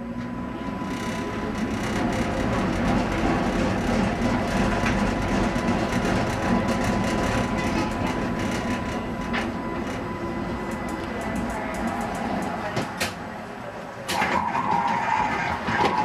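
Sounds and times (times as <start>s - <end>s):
wheels rumbling on rails: 0.0s - 16.0s
thin steady whine: 6.4s - 15.2s.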